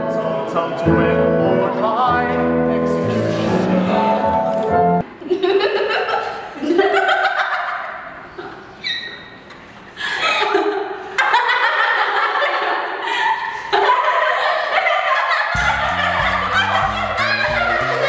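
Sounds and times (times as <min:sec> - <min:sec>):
women laughing together: 0:10.1 - 0:18.0.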